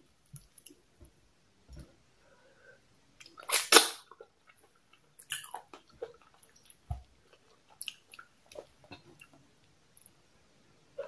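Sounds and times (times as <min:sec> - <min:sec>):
chewing with sticky smacks: 0:04.1 - 0:09.4.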